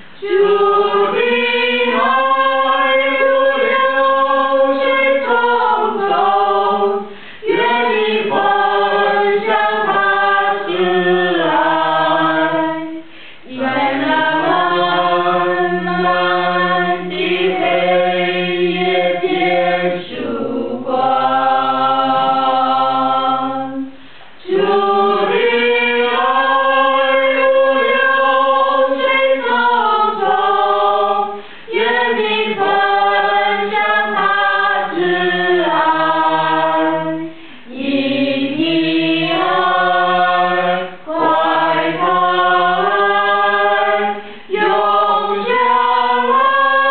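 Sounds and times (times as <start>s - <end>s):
choir singing a cappella: 0.0s - 46.9s.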